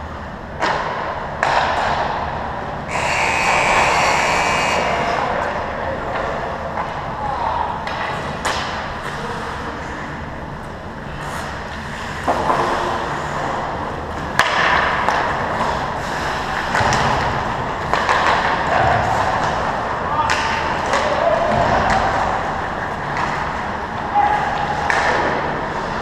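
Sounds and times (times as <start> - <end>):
stick and puck clacks: 0.6 - 3.9, 7.7 - 9.3, 10.6 - 26.0.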